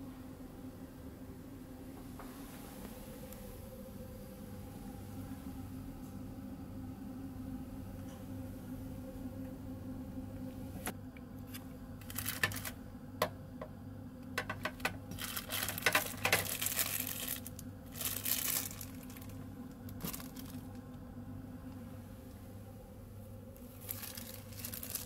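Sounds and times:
steady low hum: 0.0s - 25.0s
plastic bag crinkling: 12.0s - 12.8s, 14.4s - 20.9s, 23.6s - 25.0s.

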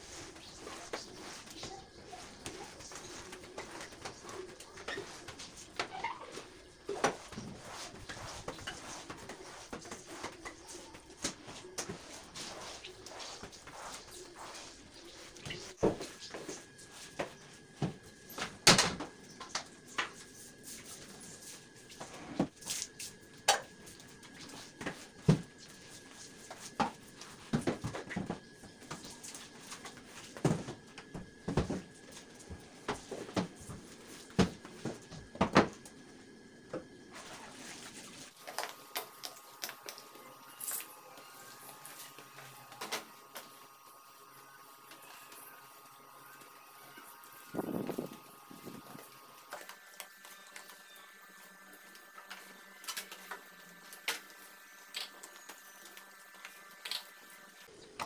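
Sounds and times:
squeegee scraping wet tiles: 0.0s - 17.0s.

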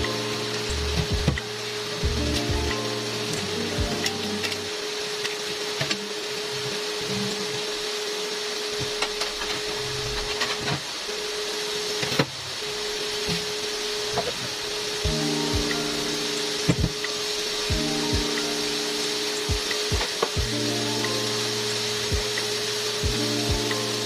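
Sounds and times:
constant hum: 0.0s - 7.9s
cooktop fan hiss: 0.0s - 24.0s.

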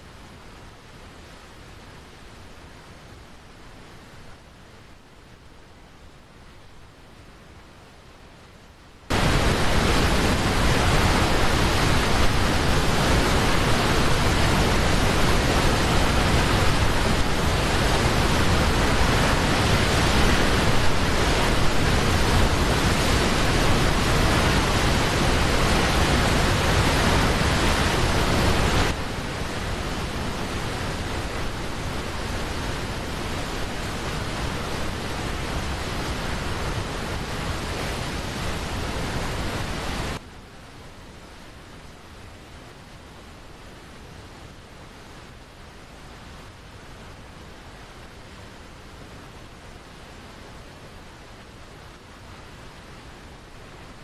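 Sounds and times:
waterfall rushing: 9.1s - 40.2s.

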